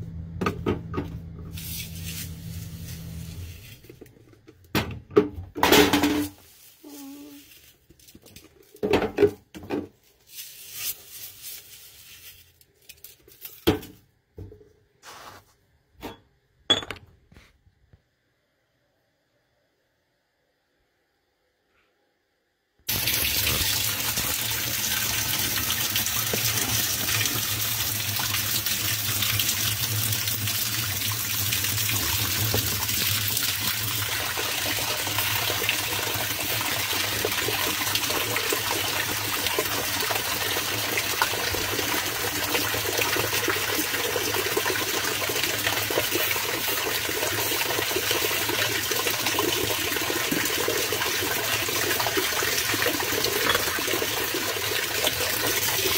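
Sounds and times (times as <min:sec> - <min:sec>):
water pouring into washing machine: 0:22.9 - 0:55.9.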